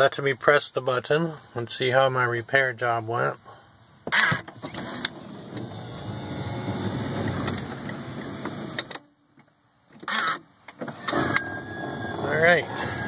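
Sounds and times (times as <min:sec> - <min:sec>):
electric door motor whirring: 0:04.1 - 0:13.0.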